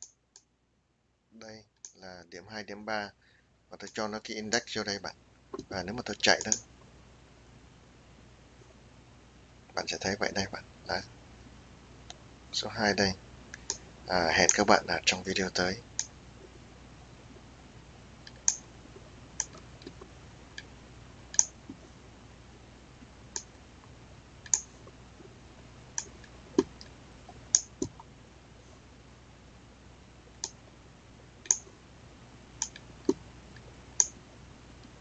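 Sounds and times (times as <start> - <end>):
faint low hum: 0.0 - 35.0
computer mouse clicking: 6.4 - 6.6, 18.2 - 18.6, 19.4 - 20.7, 21.3 - 21.8, 24.4 - 24.7, 31.4 - 31.7, 32.6 - 33.2, 34.0 - 34.2.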